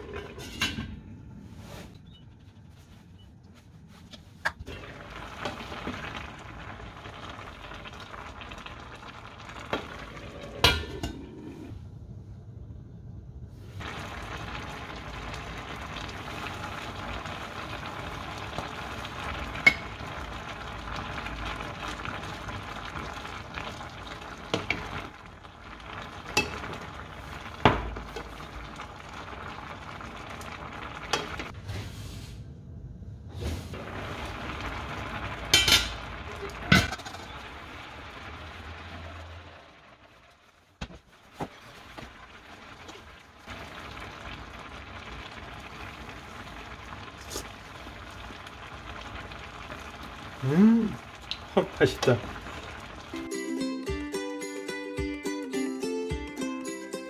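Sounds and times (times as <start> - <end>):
fish sauce bubbling and sizzling: 4.6 - 11.7, 13.7 - 31.6, 33.7 - 53.3.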